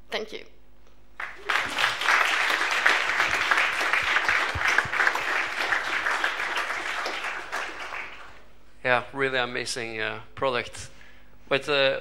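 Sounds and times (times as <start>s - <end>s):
audience applauding: 1.2s - 8.6s.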